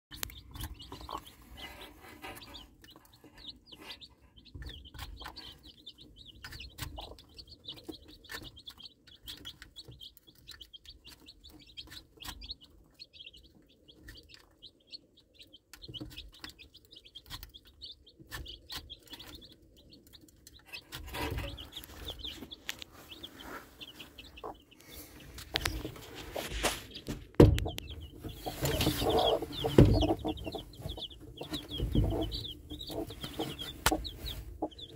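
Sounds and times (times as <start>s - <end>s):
baby chicks peeping: 0.1s - 34.9s
rustling: 20.8s - 34.9s.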